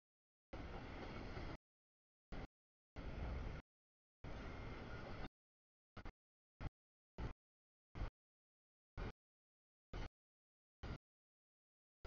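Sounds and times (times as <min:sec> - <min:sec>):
freight train rumble: 0:00.6 - 0:01.6, 0:02.3 - 0:03.6.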